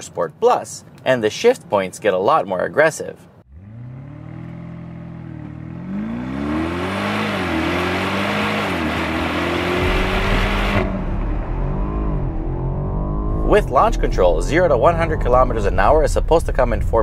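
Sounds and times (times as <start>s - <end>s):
car engine accelerating hard: 3.5s - 17.0s.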